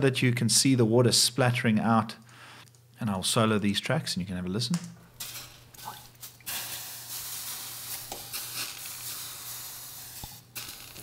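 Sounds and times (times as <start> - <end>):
water sizzling on hot stovetop: 5.2 - 11.0.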